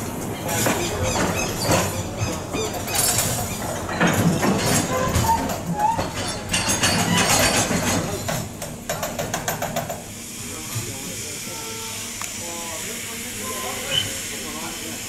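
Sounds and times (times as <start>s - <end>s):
train wheels clattering on track: 0.0s - 10.1s.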